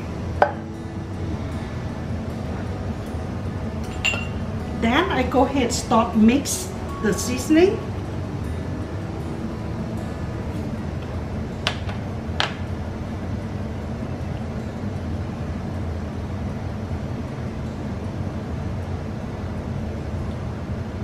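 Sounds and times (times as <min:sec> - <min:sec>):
low hum: 0:00.0 - 0:21.0
metal spoon clinks: 0:03.9 - 0:04.4.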